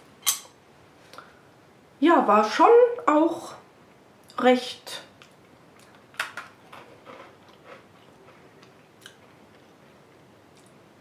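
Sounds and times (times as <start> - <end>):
person chewing crunchy snack: 6.6 - 9.8.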